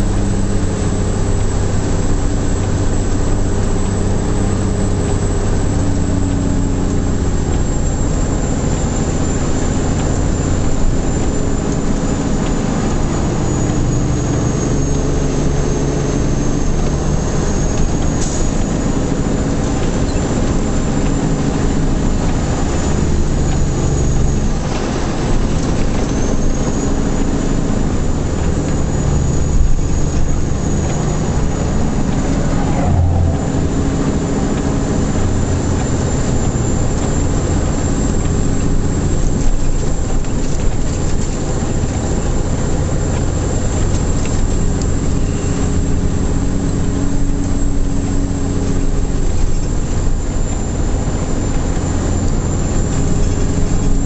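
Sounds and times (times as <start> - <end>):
truck diesel engine under load: 0.0 - 54.0
tyre noise on wet road: 0.0 - 54.0
thin high whine: 30.1 - 35.1.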